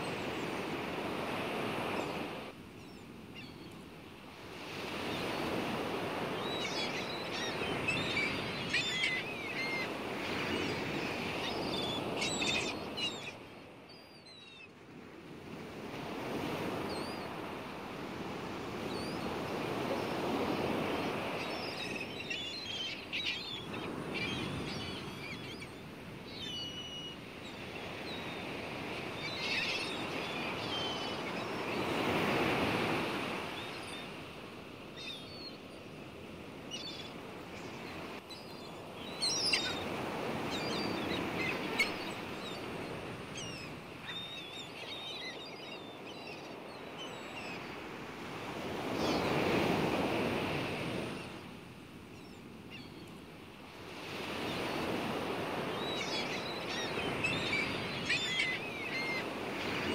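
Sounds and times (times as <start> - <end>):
seagulls calling: 4.8 - 14.7, 18.4 - 34.2, 36.3 - 51.1, 54.0 - 59.9.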